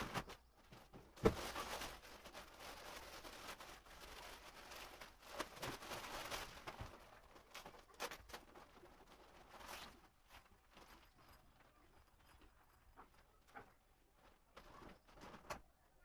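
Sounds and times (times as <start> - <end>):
plastic packaging crinkling: 0.0 - 11.3.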